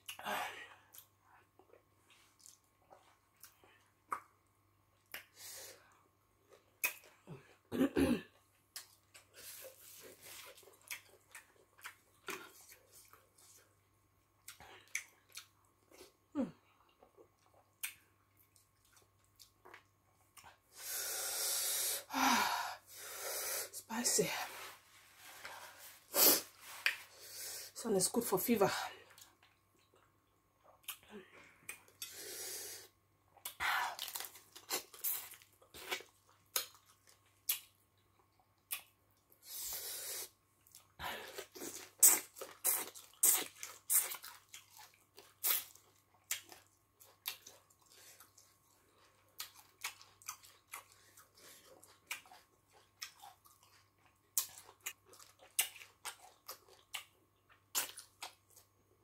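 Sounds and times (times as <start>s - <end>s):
wet chewing and lip smacks: 0.9s - 4.4s, 16.9s - 20.6s, 33.4s - 39.4s, 40.6s - 58.8s.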